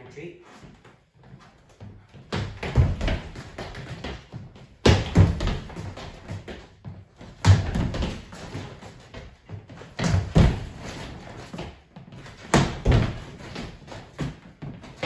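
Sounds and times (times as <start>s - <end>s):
light scuffing steps: 0.4s - 4.7s
feet thudding on hardwood floor: 0.6s - 15.0s.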